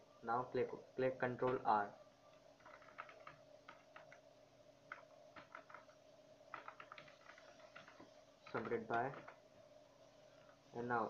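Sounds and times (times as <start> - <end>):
faint steady hum: 0.0 - 11.0
faint keyboard keystrokes: 2.6 - 4.2, 4.9 - 9.4.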